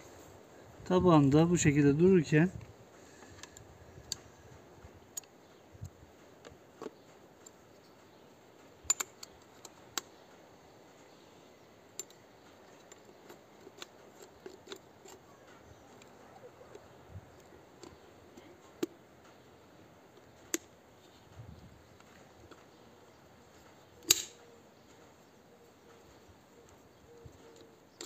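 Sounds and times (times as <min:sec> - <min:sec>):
plastic parts clicking: 0:12.0 - 0:19.4.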